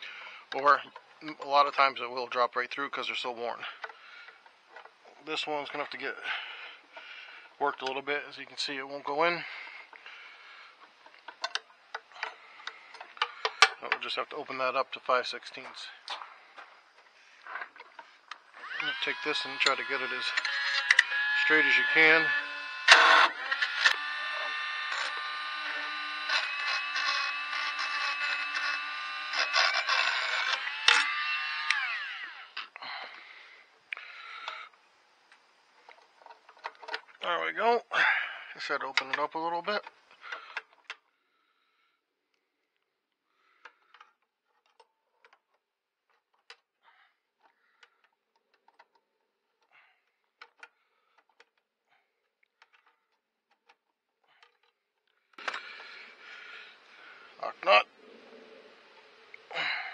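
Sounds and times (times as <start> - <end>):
drill bit grating: 17.5 - 32.7
electric drill drilling steel: 18.3 - 32.7
pliers clicking and scraping metal: 19.0 - 22.2.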